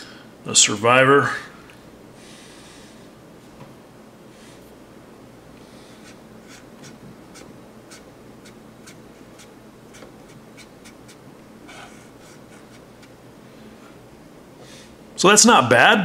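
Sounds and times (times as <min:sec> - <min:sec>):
soft rubbing: 0:05.7 - 0:14.1.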